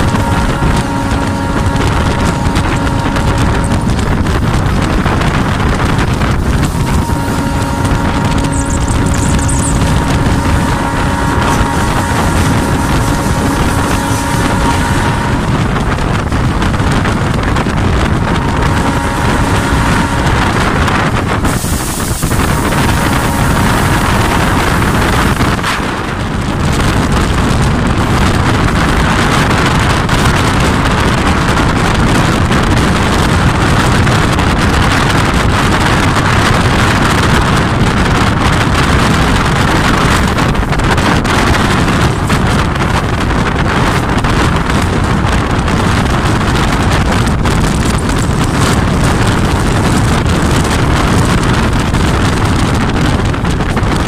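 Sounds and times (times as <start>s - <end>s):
diesel train running at speed: 0.0s - 54.0s
wind buffeting microphone: 0.0s - 54.0s.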